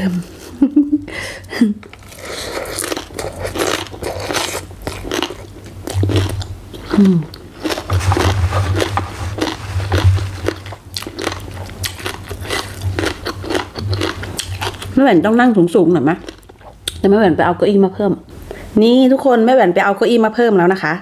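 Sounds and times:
chewing and crunching: 1.9s - 15.0s, 16.2s - 17.0s
wet mouth sounds: 2.1s - 14.9s
person humming mm: 6.9s - 7.4s.

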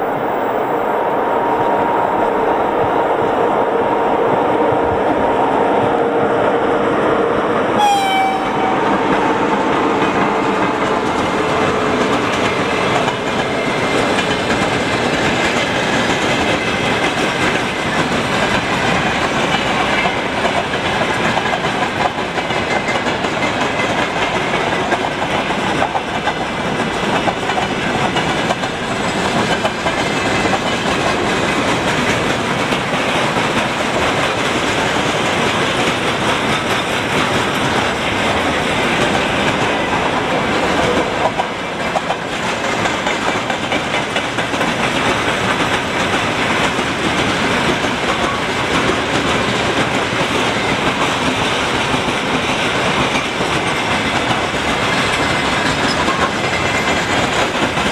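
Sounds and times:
electric locomotive whine: 0.0s - 57.9s
brief sharp tone: 7.8s - 8.8s
train wheels clattering over rail joints: 9.0s - 57.9s.

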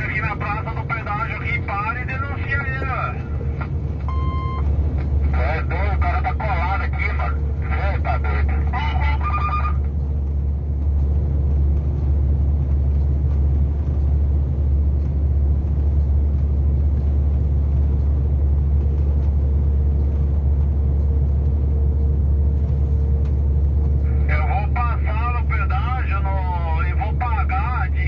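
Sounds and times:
truck engine and road noise: 0.0s - 28.0s.

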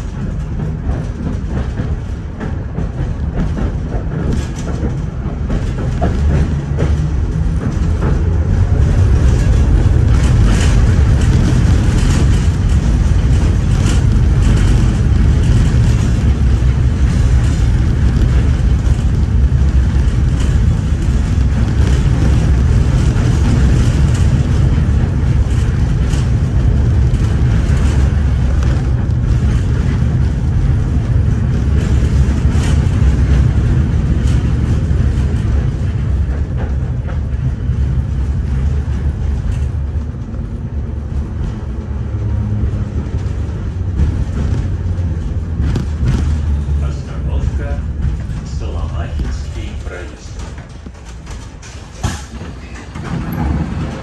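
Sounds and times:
tram rumbling on rails: 0.0s - 54.0s
wheels clicking over track: 0.0s - 54.0s.

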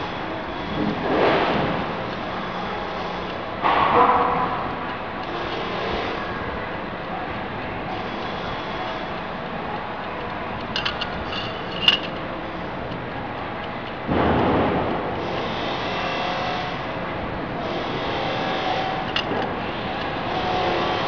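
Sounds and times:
tool scraping against metal shaft: 10.7s - 12.2s, 17.7s - 21.0s.

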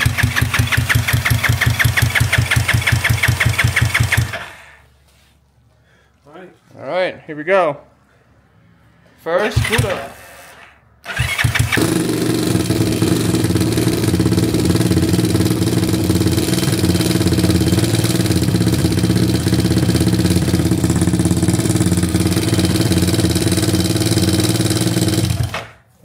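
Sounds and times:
single-cylinder motorcycle engine running: 0.0s - 4.5s, 11.2s - 25.8s
engine clanking: 9.4s - 10.0s, 11.1s - 25.7s.

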